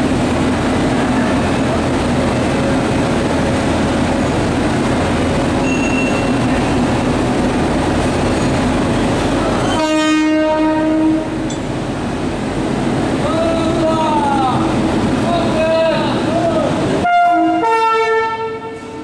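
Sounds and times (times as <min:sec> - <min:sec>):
electric locomotive humming: 0:00.0 - 0:19.0
train horn blast: 0:09.6 - 0:11.5, 0:17.0 - 0:19.0.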